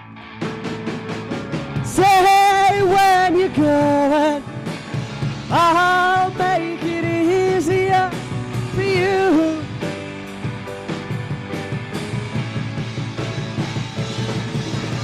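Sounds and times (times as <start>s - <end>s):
rock band playing: 0.0s - 15.0s
person singing: 1.8s - 4.5s, 5.5s - 9.9s.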